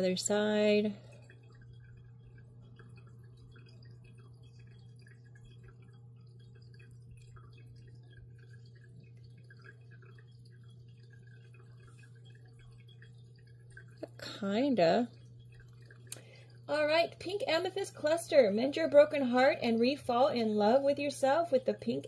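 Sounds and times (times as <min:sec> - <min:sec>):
faint ticks and rustles: 0:00.0 - 0:22.0
low electrical hum: 0:00.0 - 0:22.0.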